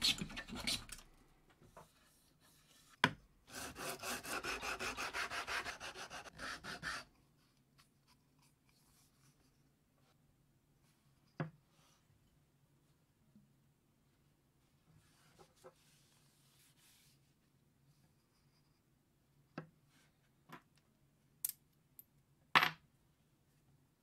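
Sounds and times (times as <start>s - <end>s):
wood rubbed on sandpaper: 3.5s - 7.1s.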